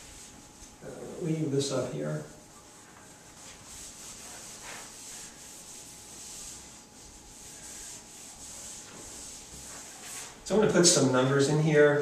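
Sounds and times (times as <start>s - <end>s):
eraser rubbing on whiteboard: 2.5s - 10.4s.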